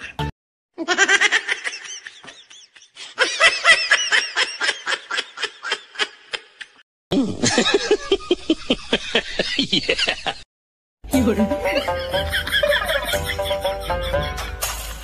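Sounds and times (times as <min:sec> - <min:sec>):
high-pitched laughter: 0:00.0 - 0:10.4, 0:11.8 - 0:14.6
music: 0:11.0 - 0:15.0
person talking: 0:11.1 - 0:12.0.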